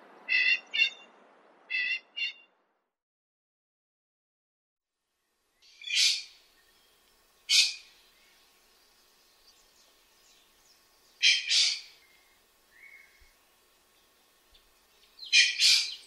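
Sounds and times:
pheasant calling harshly: 0:00.3 - 0:01.0, 0:01.7 - 0:02.4, 0:05.7 - 0:06.4, 0:07.5 - 0:07.9, 0:11.2 - 0:12.1, 0:15.2 - 0:16.0.

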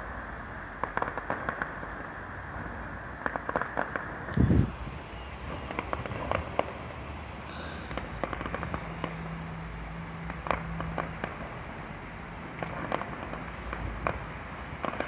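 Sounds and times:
fireworks cracking and popping: 0:00.8 - 0:06.8, 0:07.9 - 0:09.4, 0:10.2 - 0:11.7, 0:12.5 - 0:15.0.

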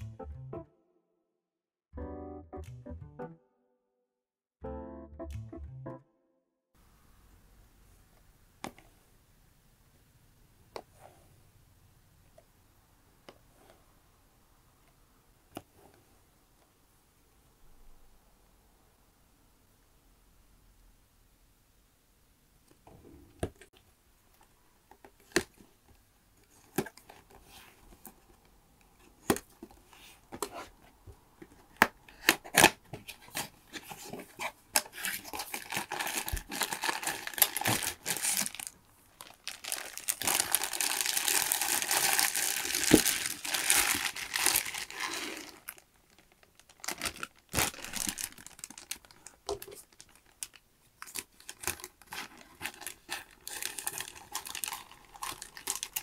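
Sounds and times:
plastic bags crinkling: 0:32.1 - 0:56.0.

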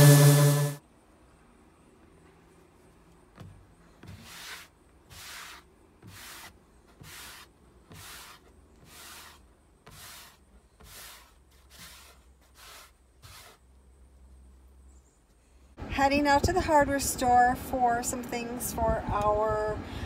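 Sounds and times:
sandpaper scratching on wood: 0:04.0 - 0:13.6.

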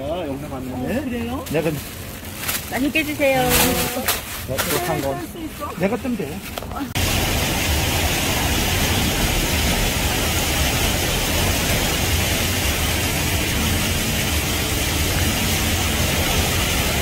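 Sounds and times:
water rushing and churning: 0:06.6 - 0:17.0.

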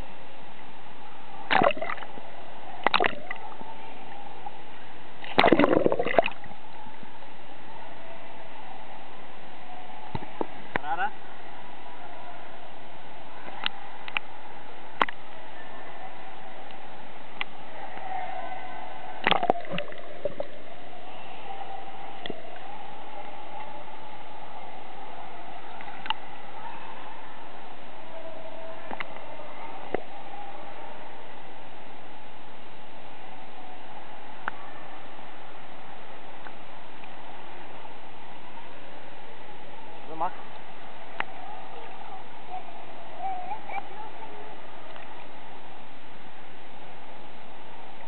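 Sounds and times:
steady background drone: 0:00.0 - 0:48.0
water splashes: 0:01.5 - 0:02.2, 0:02.8 - 0:03.6, 0:05.2 - 0:06.6, 0:19.2 - 0:20.7
indoor pool hall hiss: 0:20.0 - 0:43.1.

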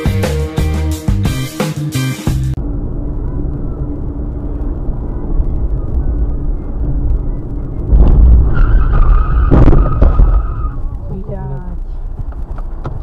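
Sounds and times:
car engine and tyre rumble: 0:02.5 - 0:13.0
loud crash impact: 0:07.9 - 0:10.8
high tyre squeal: 0:08.4 - 0:10.9.

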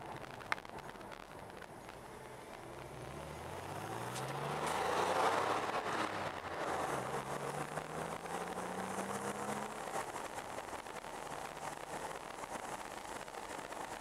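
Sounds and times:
car engine accelerating through gears: 0:02.7 - 0:11.9.

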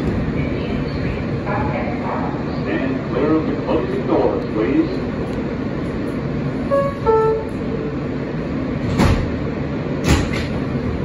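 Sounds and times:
train humming: 0:00.0 - 0:11.0
train doors shutting thud: 0:08.8 - 0:10.8.

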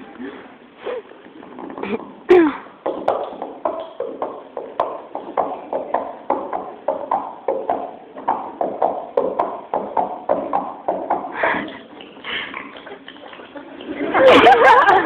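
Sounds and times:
rhythmic percussive strikes: 0:02.8 - 0:13.4.

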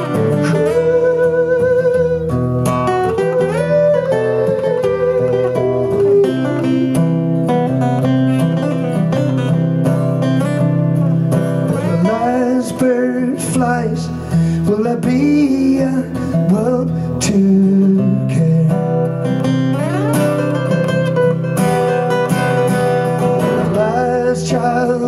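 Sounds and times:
man singing: 0:00.0 - 0:02.4, 0:03.2 - 0:06.9, 0:11.7 - 0:19.5, 0:23.4 - 0:25.0
acoustic guitars playing: 0:00.0 - 0:25.0.

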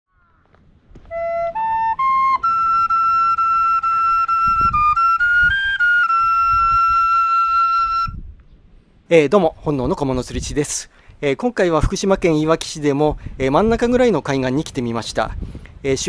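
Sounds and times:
low wind rumble: 0:00.2 - 0:16.0
flute-like melody: 0:01.0 - 0:08.2.

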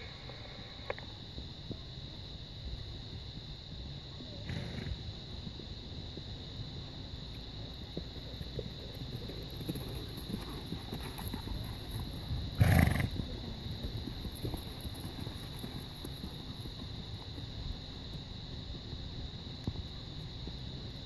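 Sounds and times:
horse snorting: 0:12.6 - 0:13.2.

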